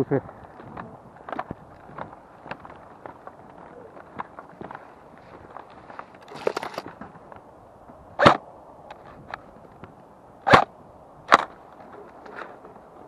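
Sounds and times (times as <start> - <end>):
footsteps on stony dirt trail: 0.2 - 8.0.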